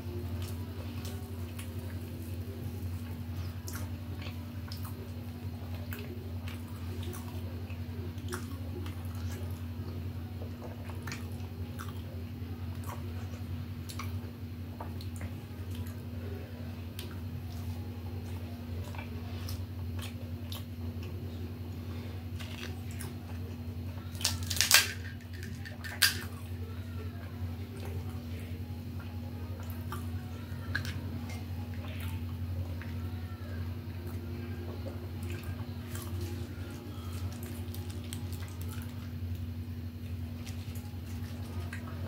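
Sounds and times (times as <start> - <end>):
faint chewing: 0.0 - 28.2, 28.9 - 42.0
steady low hum: 0.0 - 42.0
crisp shells crunching: 24.1 - 26.4, 35.8 - 39.1.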